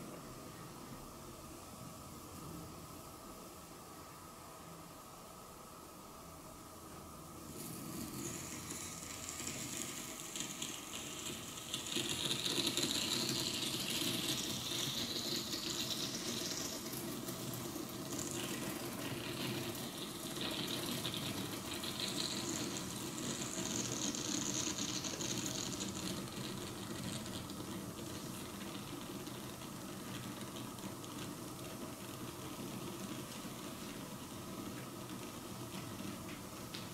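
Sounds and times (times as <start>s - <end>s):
hiss: 7.4s - 31.1s
hot metal sizzling and crackling: 7.5s - 36.4s.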